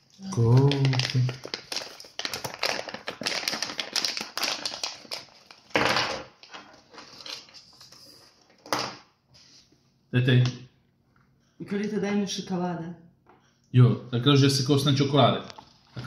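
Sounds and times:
plastic bag crinkling: 0.1s - 8.0s.

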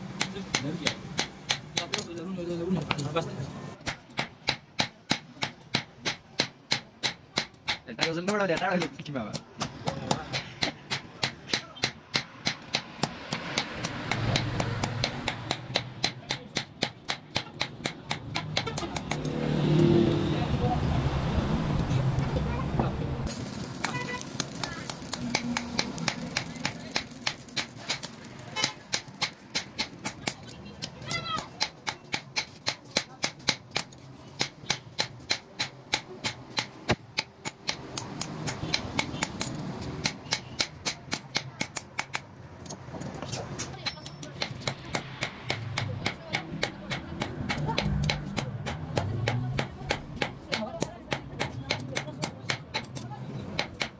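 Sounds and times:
hammer striking steel on anvil: 23.4s - 30.4s.

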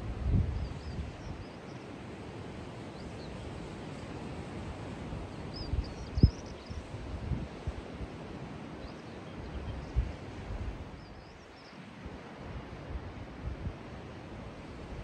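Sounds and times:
wind buffeting the microphone: 0.0s - 15.0s
small birds chirping: 5.3s - 6.9s, 10.9s - 11.8s.

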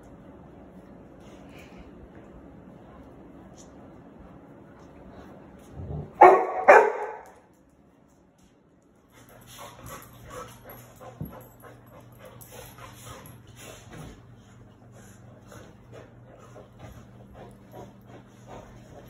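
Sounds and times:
low steady hum: 0.0s - 19.0s
dog barking: 6.2s - 7.3s.

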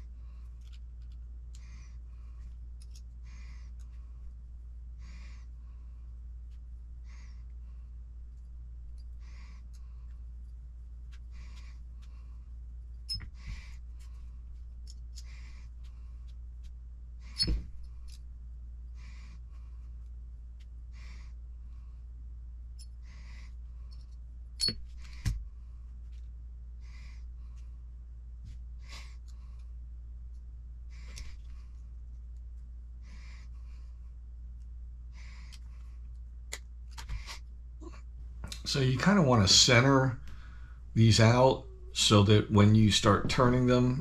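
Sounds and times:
steady low hum: 0.0s - 44.0s
metal tool clicking on small parts: 2.8s - 3.1s.

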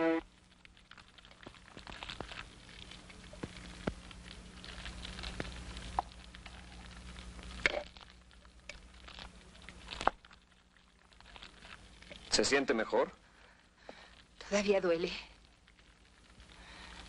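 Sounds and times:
campfire crackling: 0.0s - 17.0s
film soundtrack hiss and hum: 0.0s - 17.0s.

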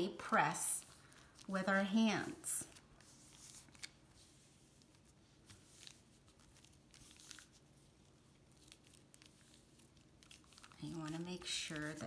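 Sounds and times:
plastic bag crinkling: 5.5s - 12.0s.

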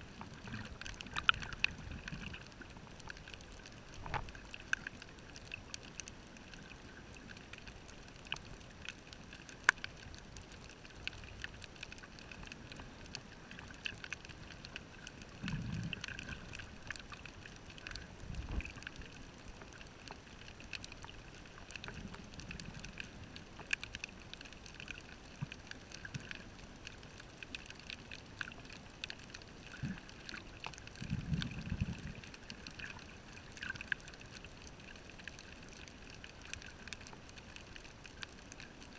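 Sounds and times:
muffled underwater hiss: 0.0s - 38.9s
sharp clicks and crackles: 0.1s - 38.9s
low muffled rumbles: 18.1s - 18.8s.

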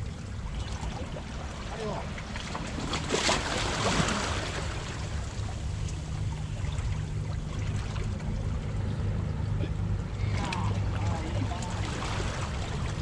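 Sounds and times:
sea splashing against rocks: 2.4s - 5.1s.

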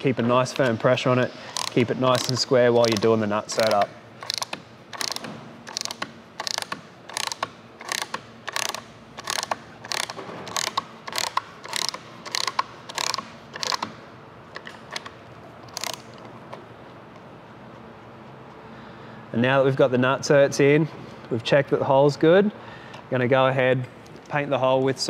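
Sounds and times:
rivet nut tool clicking: 1.5s - 14.0s, 15.7s - 16.2s.

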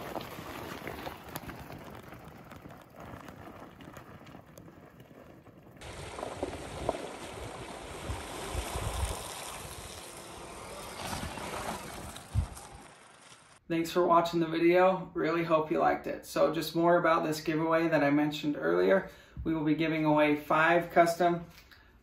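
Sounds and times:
tyres rumbling on dirt trail: 0.0s - 13.6s
wind buffeting microphone: 5.8s - 12.9s.

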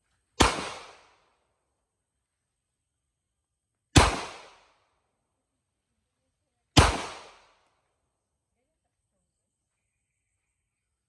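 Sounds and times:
pistol shots: 0.4s - 1.2s, 3.9s - 4.8s, 6.8s - 7.6s.

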